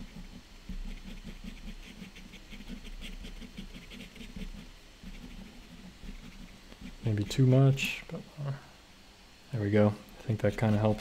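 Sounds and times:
pen scratching on paper: 0.0s - 7.0s.

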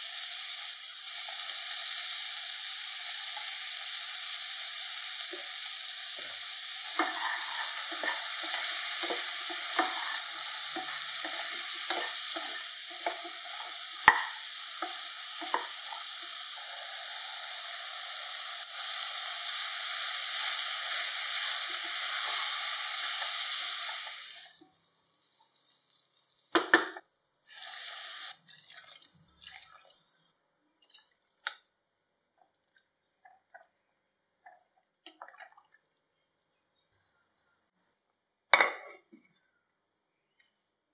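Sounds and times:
vegetables sizzling in a pot: 0.0s - 28.5s
spatula scraping pot: 6.2s - 13.3s.

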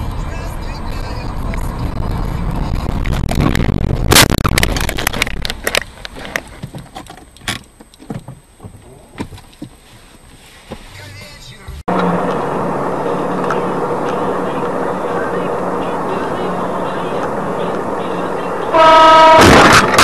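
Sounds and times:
road noise inside moving car: 0.0s - 20.0s
loud car collision: 18.8s - 20.0s.

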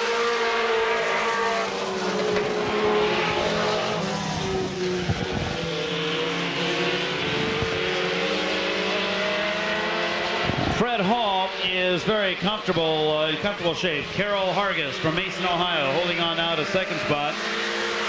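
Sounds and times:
race car engines: 0.0s - 18.0s.

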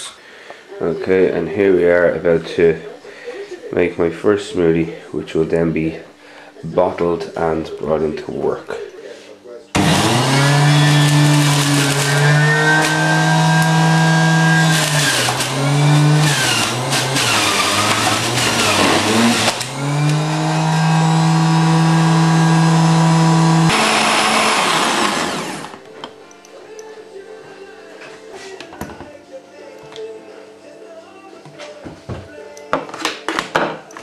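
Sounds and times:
juicer motor whining: 9.8s - 25.9s.

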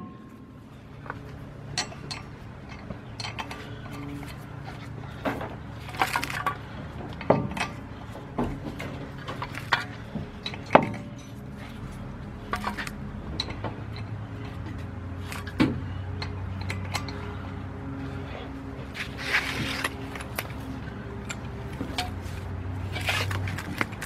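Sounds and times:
steady low hum: 0.0s - 24.0s
metal lug nuts clinking: 1.0s - 18.2s.

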